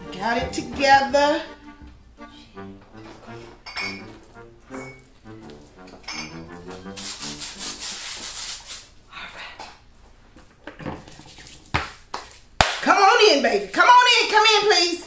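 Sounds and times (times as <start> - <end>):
short music: 0.0 - 7.8
rough rubbing noise: 3.0 - 8.9.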